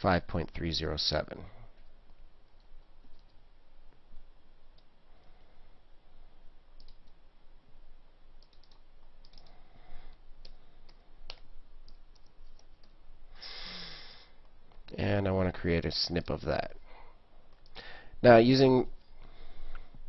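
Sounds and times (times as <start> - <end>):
computer mouse clicks: 1.8 - 3.4, 6.8 - 7.2, 8.4 - 13.0.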